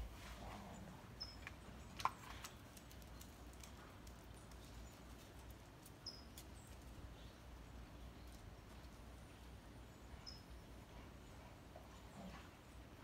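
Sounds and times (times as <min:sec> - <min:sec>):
dog claws ticking on concrete: 0:01.4 - 0:07.0.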